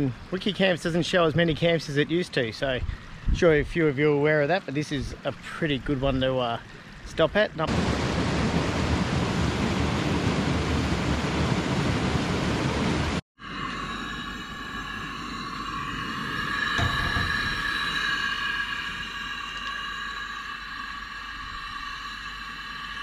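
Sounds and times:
high drone of held tones: 13.4 - 23.0.

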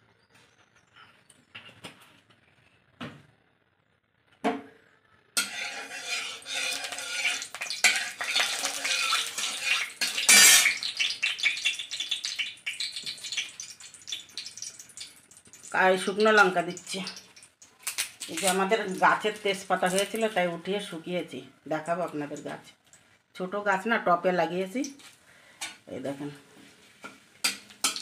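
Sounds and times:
metal spatula scraping pan: 5.4 - 11.5, 26.6 - 28.0
oil sizzling in a wok: 5.4 - 20.6, 26.8 - 28.0.

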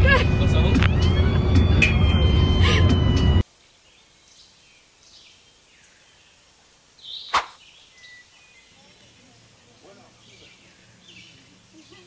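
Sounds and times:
faint outdoor ambience: 0.0 - 12.0
faint bird chirps: 3.7 - 12.0
sharp click: 7.3 - 7.6.

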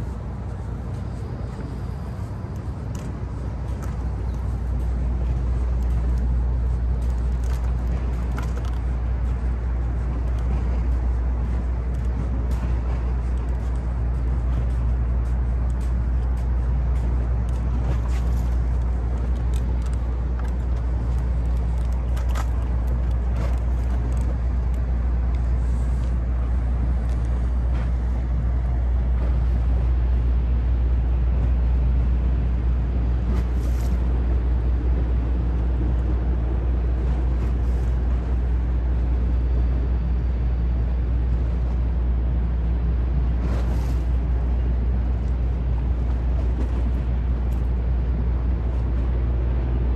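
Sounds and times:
ferry engines idling: 0.0 - 49.9.

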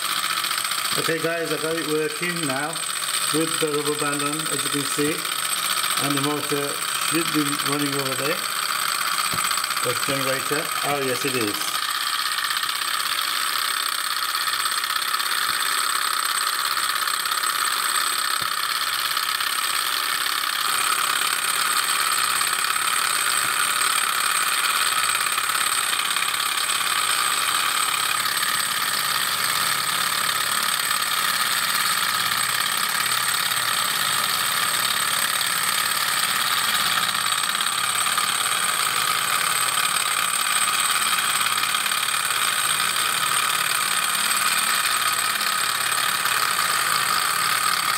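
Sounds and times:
stirling engine running: 0.0 - 16.2.

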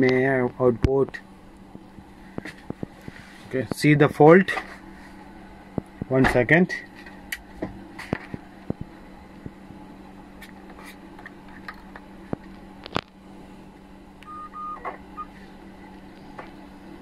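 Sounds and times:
low electrical hum: 0.0 - 17.0
short high beeps: 14.3 - 14.8.

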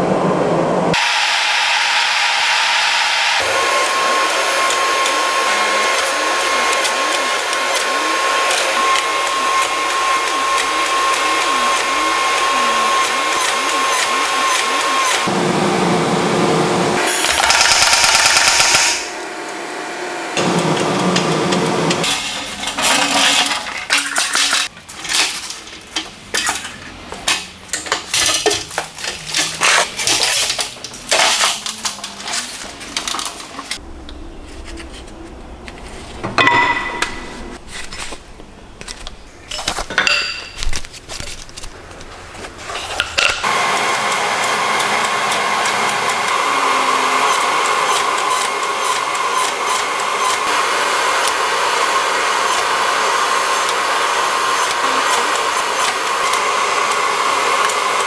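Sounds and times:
hydraulic press whine: 0.9 - 23.9, 42.6 - 58.0
pneumatic power hammer: 17.0 - 19.1.

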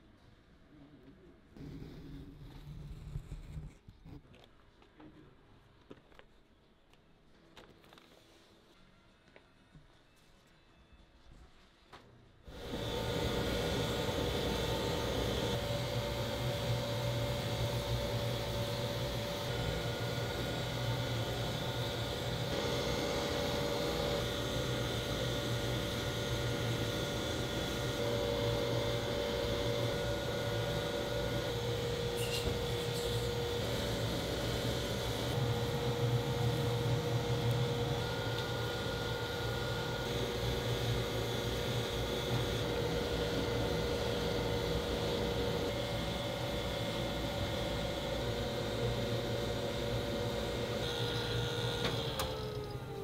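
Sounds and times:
electric motor humming: 12.5 - 53.0.

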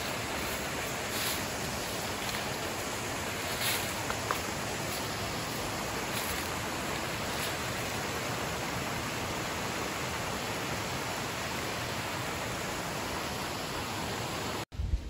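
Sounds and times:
creek rushing over rocks: 0.0 - 14.6.

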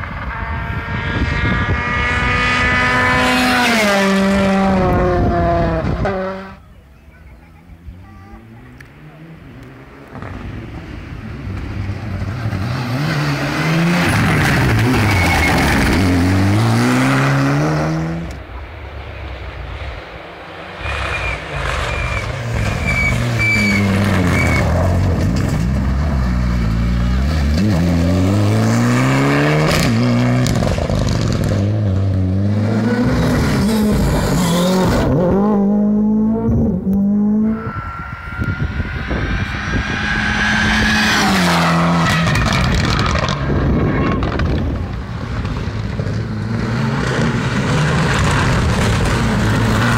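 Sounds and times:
rally car engines accelerating: 0.0 - 6.7, 7.8 - 49.9
high whine: 34.8 - 45.2.

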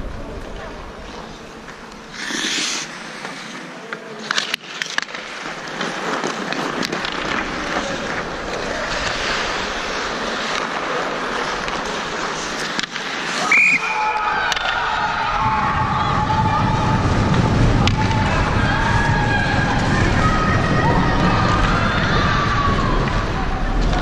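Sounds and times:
skates scraping on ice: 0.2 - 15.0
hockey sticks and puck clacking: 1.1 - 15.3, 17.0 - 19.1.

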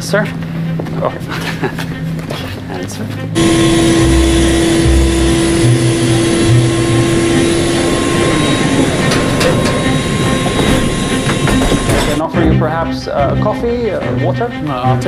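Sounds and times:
jet aircraft roar and whine: 3.4 - 12.3.

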